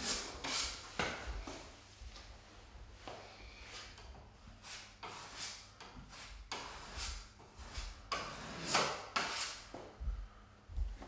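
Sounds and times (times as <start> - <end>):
putty knife scraping wood: 4.6 - 9.7.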